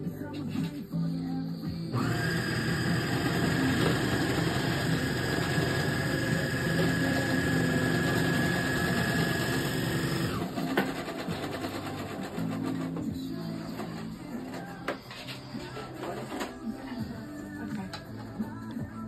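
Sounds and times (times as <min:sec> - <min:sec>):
overlock machine stitching: 0:02.0 - 0:14.8, 0:15.7 - 0:16.7.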